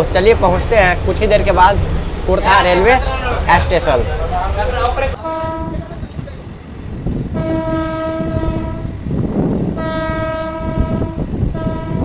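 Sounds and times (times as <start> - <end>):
train rumbling on track: 0.0 - 12.0
train horn blasts: 5.2 - 6.0, 7.3 - 9.0, 9.7 - 12.0.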